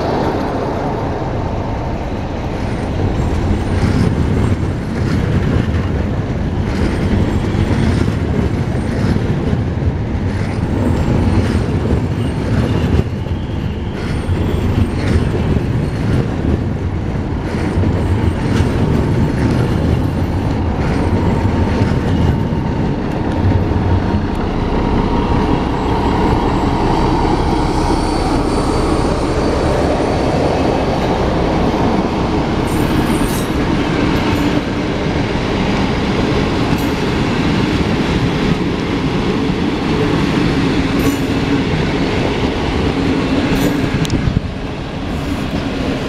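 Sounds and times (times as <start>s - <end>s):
diesel locomotive rumbling past: 0.0s - 46.0s
train wheels squealing: 10.6s - 16.2s.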